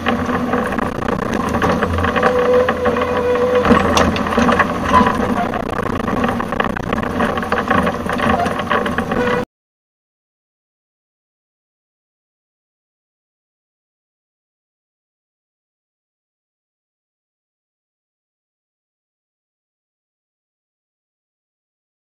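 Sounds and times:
diesel engine drone: 0.0s - 9.4s.

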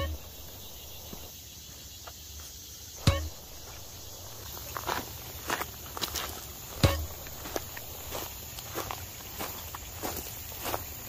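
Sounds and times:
faint background noise: 0.0s - 11.0s
sharp knock with ringing tail: 3.0s - 4.4s, 6.7s - 8.1s.

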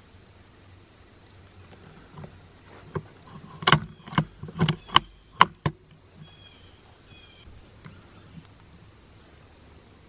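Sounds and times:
gear handling clicks and knocks: 2.1s - 6.3s.

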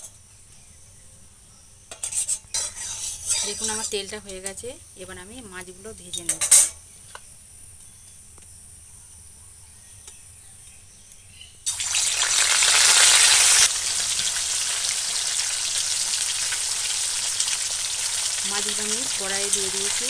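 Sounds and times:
fish frying in hot oil: 11.7s - 20.0s.

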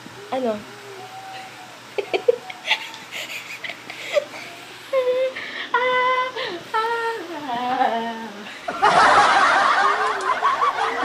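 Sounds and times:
woman laughing: 2.0s - 5.6s, 7.4s - 11.0s.

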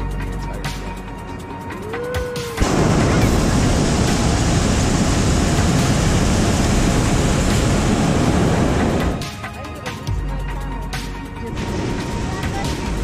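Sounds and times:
propane burner blast: 2.6s - 9.4s.

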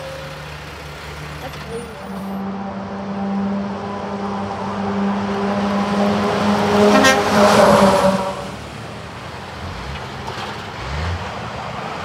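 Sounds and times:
truck diesel engine running: 0.0s - 7.2s
tyre and road noise: 0.0s - 12.0s.

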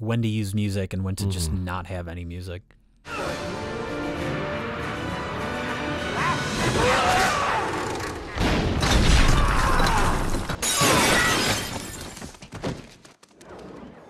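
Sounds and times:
people shouting: 3.1s - 3.6s, 6.0s - 8.2s.

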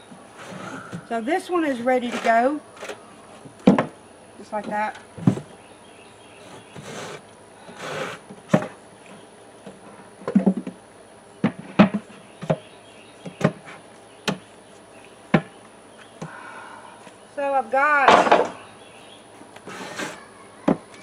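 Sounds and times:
wooden box scraping: 0.3s - 3.0s, 6.4s - 8.8s, 19.6s - 20.2s.

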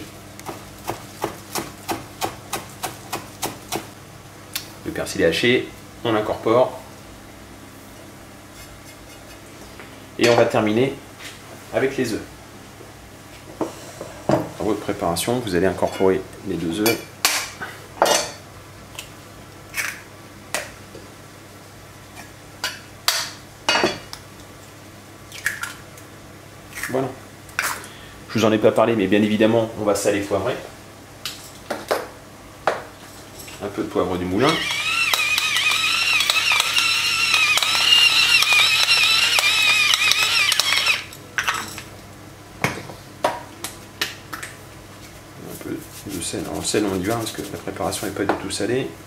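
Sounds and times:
pepper mill grinding: 34.4s - 41.2s.

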